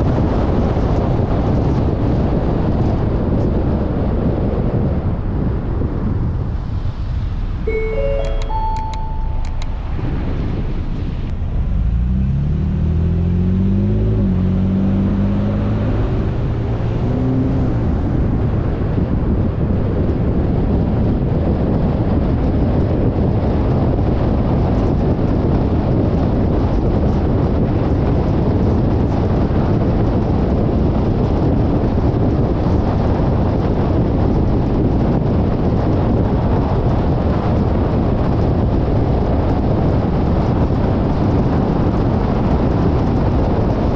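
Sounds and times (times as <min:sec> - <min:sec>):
road and wind noise: 0:00.0 - 0:43.9
car engine accelerating: 0:11.0 - 0:19.5.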